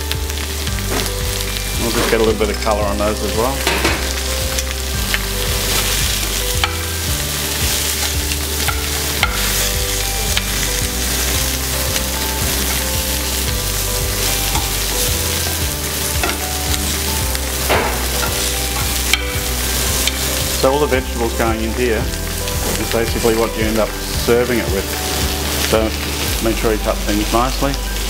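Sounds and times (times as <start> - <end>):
meat and onions sizzling in pan: 0.0 - 28.0
metal tongs scraping pan: 14.3 - 20.3.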